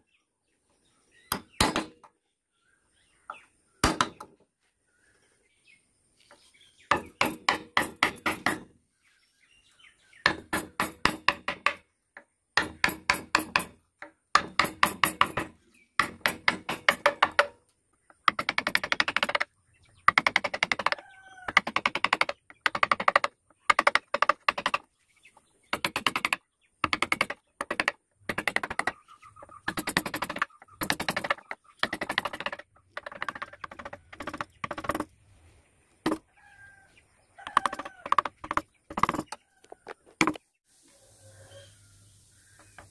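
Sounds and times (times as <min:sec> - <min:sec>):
mallet tapping chisel into wood: 0:12.6 - 0:17.5.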